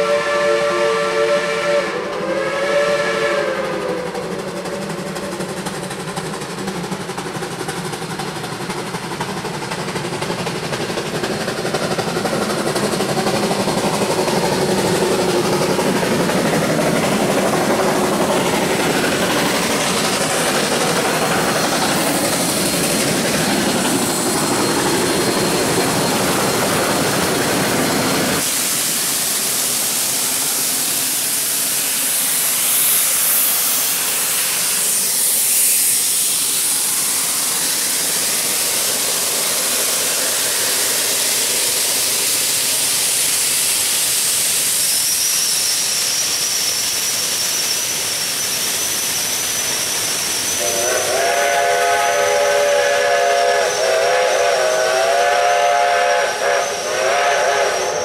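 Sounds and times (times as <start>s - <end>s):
chord-like steam whistle: 0.0s - 4.3s, 49.6s - 58.0s
steam locomotive hissing: 0.0s - 58.0s.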